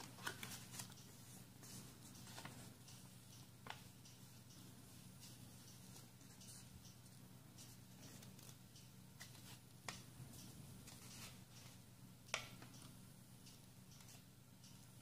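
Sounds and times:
paper rustling and crinkling: 0.0s - 2.6s
sharp paper ticks: 0.0s - 12.9s.

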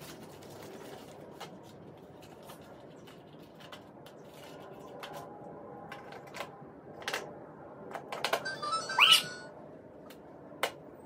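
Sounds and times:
electronic jingle of beeps: 8.4s - 9.5s.

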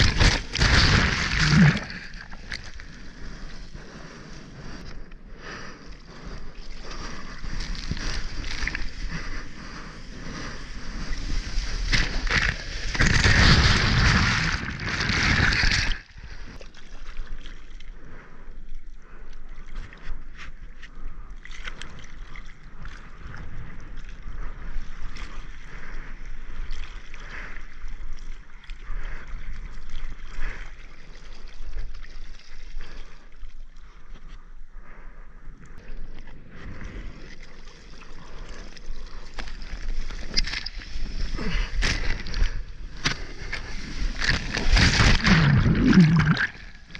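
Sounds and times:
rush of water: 0.0s - 2.9s, 36.9s - 46.9s
seawater sloshing and splashing: 37.1s - 46.9s.

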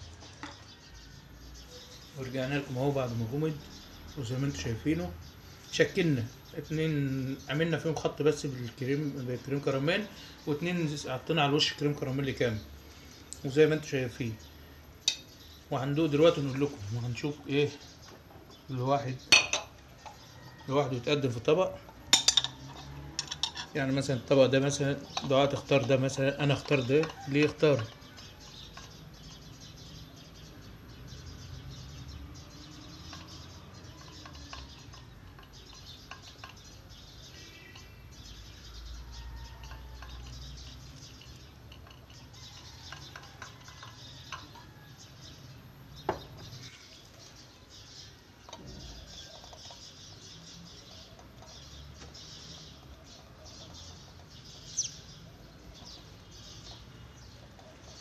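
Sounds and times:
china dishes clinking: 19.3s - 20.2s, 22.1s - 23.8s.

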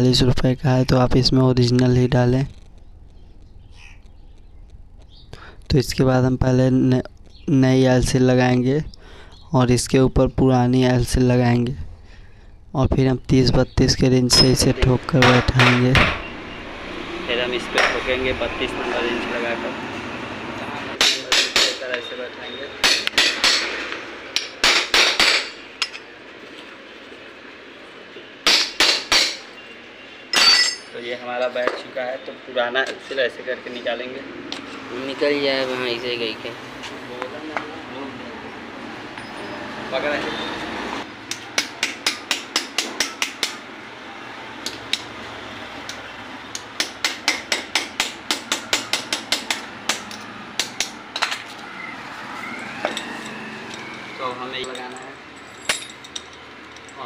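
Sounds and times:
hammering metal on metal: 21.0s - 22.0s, 22.8s - 26.0s, 28.4s - 29.5s, 30.3s - 31.0s, 41.3s - 43.7s, 46.5s - 51.0s.

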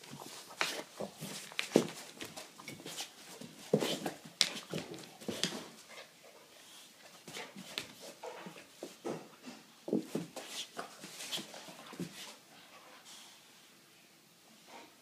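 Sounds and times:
dog playing with rope toy: 0.0s - 9.0s, 9.8s - 12.4s.

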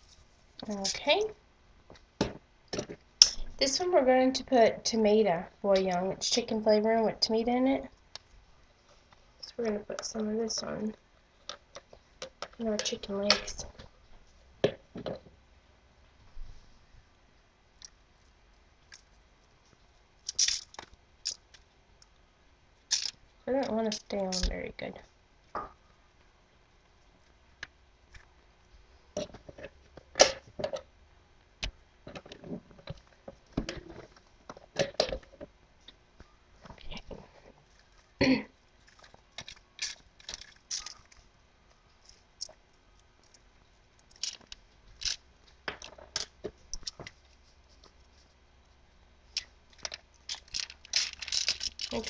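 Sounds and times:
foil crinkling: 38.8s - 41.3s, 44.1s - 45.2s, 49.4s - 52.0s.

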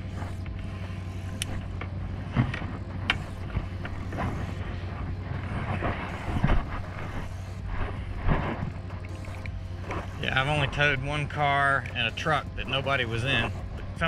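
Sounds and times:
engine idling: 0.0s - 14.0s
knocks and clunks: 1.5s - 6.7s.

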